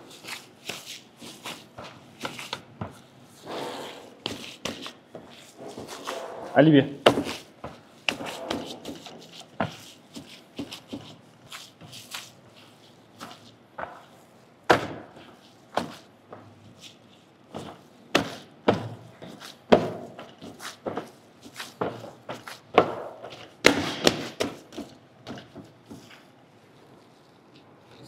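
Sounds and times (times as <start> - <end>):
meat being kneaded and slapped: 7.0 - 26.2.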